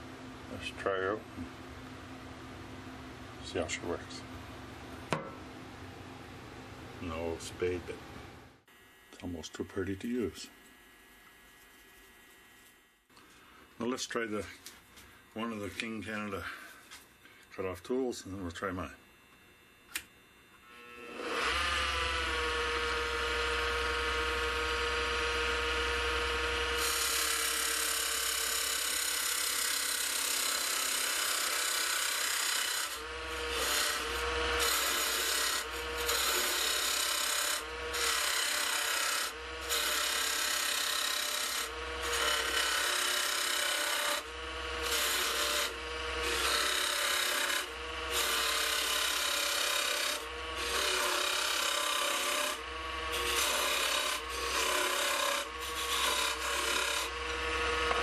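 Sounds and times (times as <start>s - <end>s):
wood lathe motor hum: 20.6s - 58.0s.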